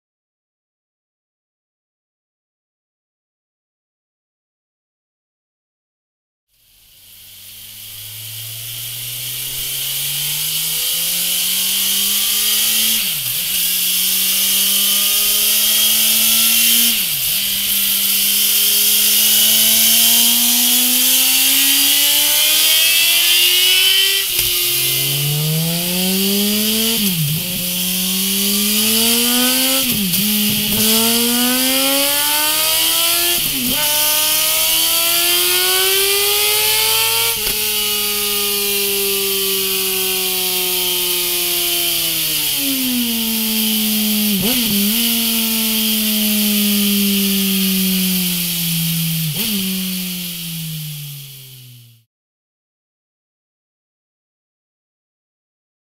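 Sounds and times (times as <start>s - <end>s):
motorcycle engine revving: 6.5s - 52.1s
steady high hiss: 6.6s - 40.0s.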